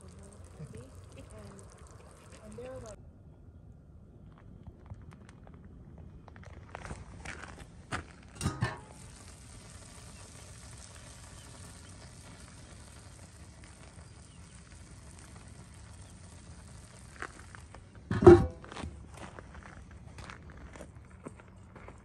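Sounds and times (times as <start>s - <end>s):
faint sizzle in a pan: 0.0s - 3.0s, 8.4s - 18.4s
metal lid knocking: 8.4s - 8.9s, 18.1s - 18.6s
metal lid clunk: 8.4s - 9.0s, 18.1s - 18.8s.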